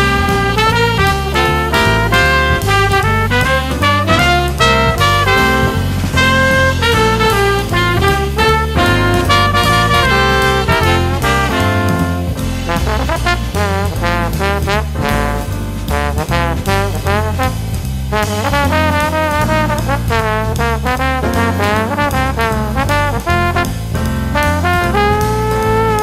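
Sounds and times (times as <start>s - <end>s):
jazzy swing brass music: 0.0s - 26.0s
steady bass: 0.0s - 26.0s.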